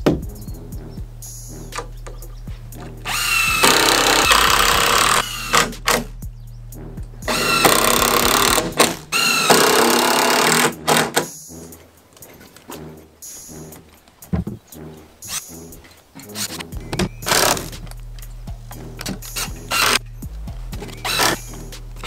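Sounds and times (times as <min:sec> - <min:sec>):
cordless drill driving screws: 0:03.1 - 0:06.1, 0:07.3 - 0:11.3, 0:17.2 - 0:17.7, 0:19.3 - 0:20.0, 0:20.9 - 0:21.6.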